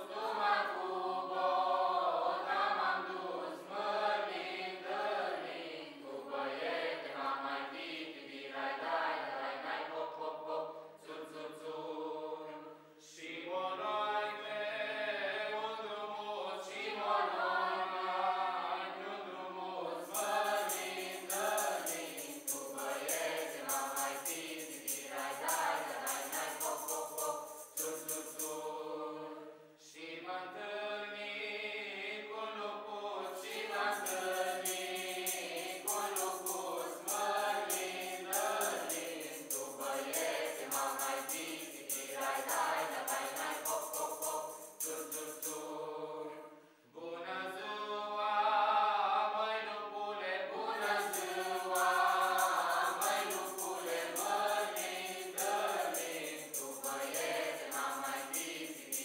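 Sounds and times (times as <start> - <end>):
choir singing a carol: 0.0 - 59.0
rhythmic high jingle: 20.1 - 28.6, 33.6 - 45.6, 50.8 - 59.0.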